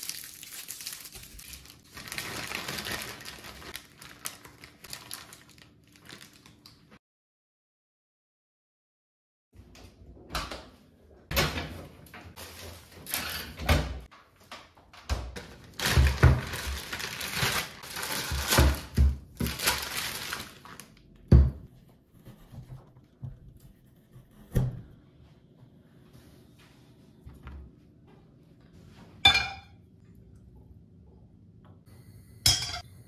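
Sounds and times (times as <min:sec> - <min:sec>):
plastic bag crinkling: 0:00.0 - 0:06.9, 0:15.6 - 0:21.0.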